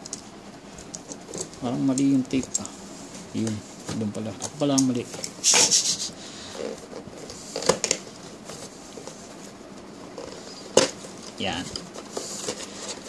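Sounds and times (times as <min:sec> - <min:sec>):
cardboard rustling and scraping: 0:06.4 - 0:13.0.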